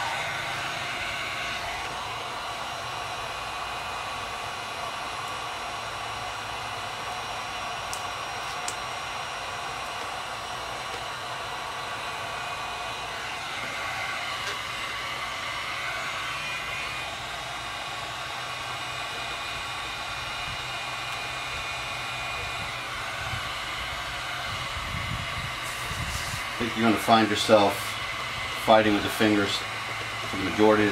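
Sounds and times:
heat gun blowing: 0:00.0 - 0:30.9.

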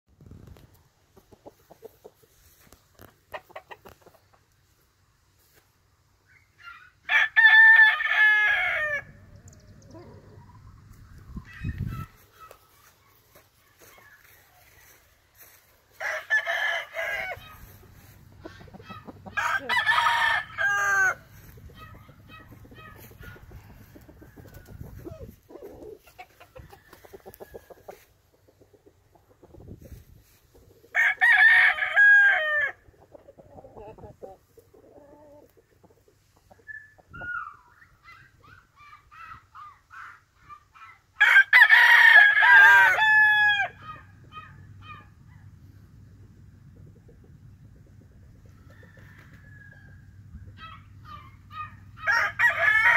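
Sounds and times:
rooster crowing: 0:06.7 - 0:09.1, 0:14.2 - 0:18.1, 0:19.3 - 0:21.5, 0:31.0 - 0:32.8, 0:41.2 - 0:43.8, 0:52.0 - 0:52.9.

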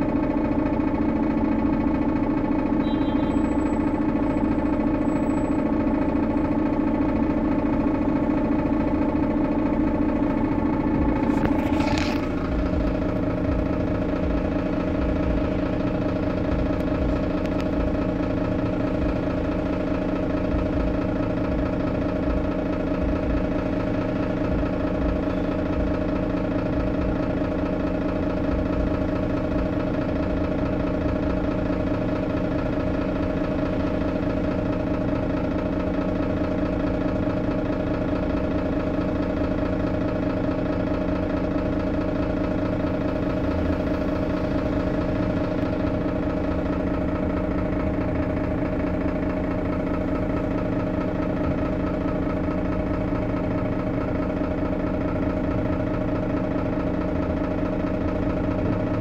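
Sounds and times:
bus diesel engine idling: 0:00.0 - 0:59.0.

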